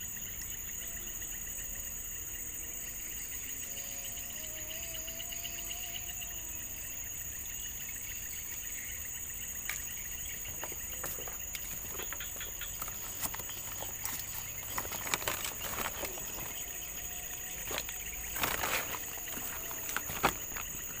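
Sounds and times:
insect chorus chirring: 0.0 - 21.0
fishing rod rustles and clicks: 10.5 - 21.0.

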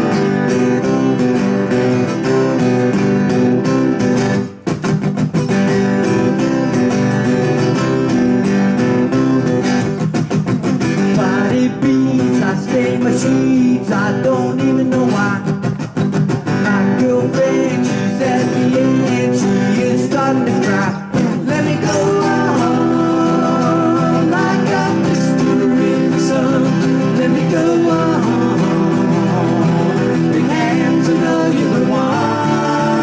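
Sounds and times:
acoustic guitars strummed: 0.0 - 33.0
men singing: 11.0 - 15.6, 16.5 - 33.0.

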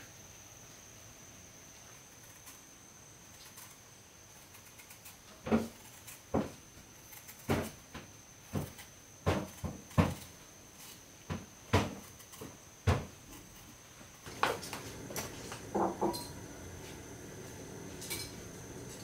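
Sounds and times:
faint high-pitched whine: 0.0 - 19.0
irregular knocks: 14.3 - 18.9.

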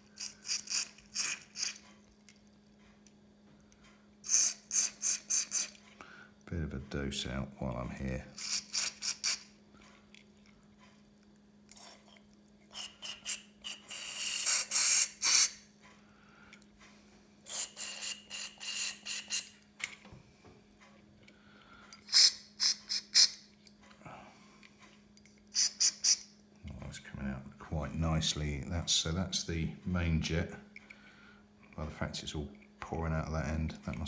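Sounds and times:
aerosol spray hissing: 22.1 - 23.4, 25.6 - 26.2.

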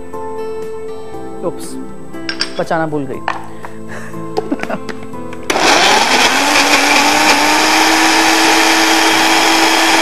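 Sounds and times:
electric blender motor whine: 5.5 - 10.0.

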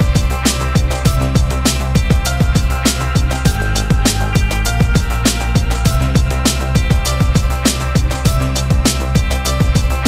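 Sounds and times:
bass line: 0.0 - 10.0
kick drum hits: 0.0 - 10.0.

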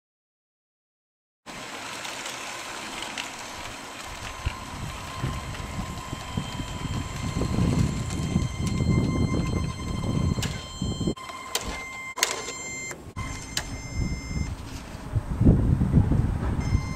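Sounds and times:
toy trains rattling on track: 1.5 - 8.4.

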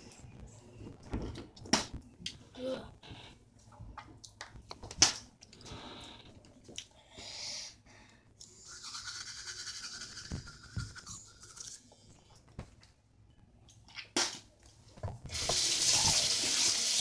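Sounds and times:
toothbrush scrubbing teeth: 8.4 - 12.0.

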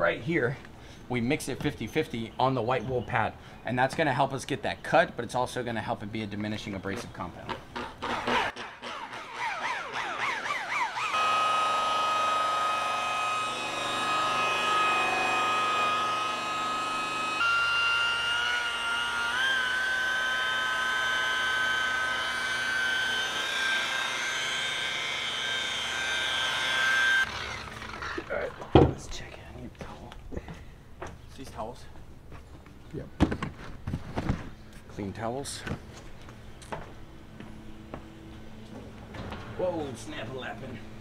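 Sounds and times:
machine polisher motor whine: 8.5 - 28.8.

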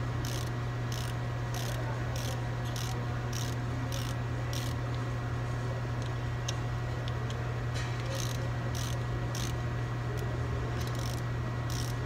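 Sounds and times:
steady low hum: 0.0 - 12.0
ratchet wrench clicking: 0.2 - 5.0, 8.0 - 9.6, 10.2 - 12.0.

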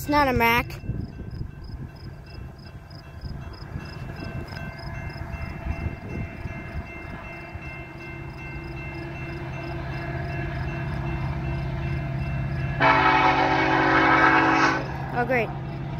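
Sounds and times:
low train rumble: 0.0 - 15.9
railroad crossing bell ringing: 0.0 - 15.9
train horn: 12.8 - 15.1.

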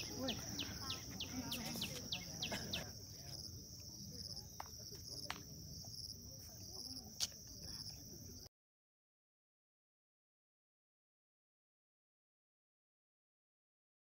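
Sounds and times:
insects trilling: 0.0 - 4.6.

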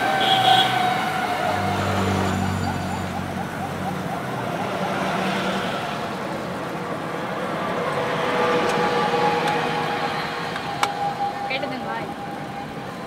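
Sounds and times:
held horn-like tone: 0.0 - 2.4
passing vehicles: 0.0 - 13.0.

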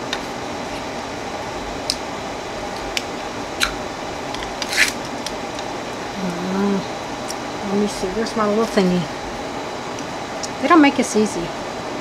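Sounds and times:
steady background hum: 0.0 - 12.0
tape wrapping crackling: 2.7 - 5.7.

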